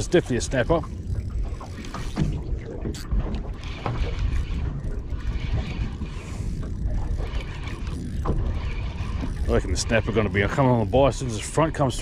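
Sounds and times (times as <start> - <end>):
water lapping against boat hull: 0.0 - 12.0
fishing reel clicking: 2.9 - 11.0.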